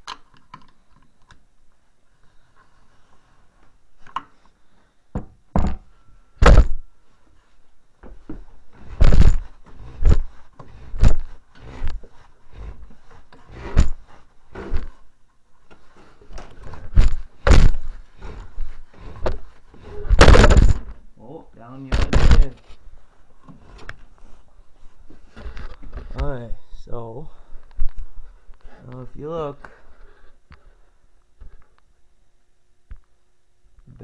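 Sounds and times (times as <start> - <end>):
heavy thunks and knocks: 5.1 - 6.8, 9.0 - 10.3, 13.6 - 14.0, 16.9 - 17.9, 20.1 - 20.9.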